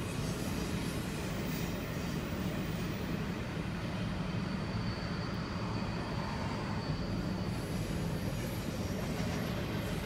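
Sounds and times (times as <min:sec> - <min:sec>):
train wheels rumbling on rail: 0:00.0 - 0:10.0.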